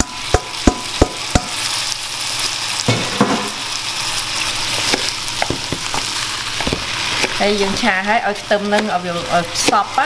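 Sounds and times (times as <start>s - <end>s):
metal bowl knocking on pan: 0.0s - 1.6s, 2.9s - 3.6s
rice sizzling in a pan: 0.0s - 10.0s.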